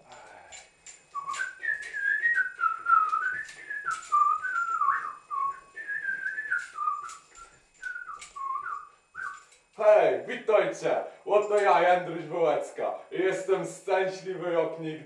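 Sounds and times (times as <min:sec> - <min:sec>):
sharp clicks keeping time: 0:00.1 - 0:09.8
person whistling a tune: 0:01.2 - 0:09.5.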